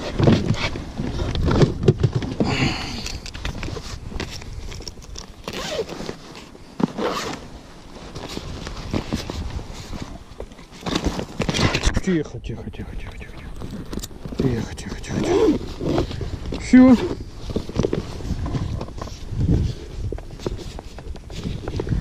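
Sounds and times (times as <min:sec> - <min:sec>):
bag rustling: 0:00.0 - 0:11.9, 0:13.4 - 0:22.0
zipper being pulled: 0:05.4 - 0:07.5, 0:15.1 - 0:16.3.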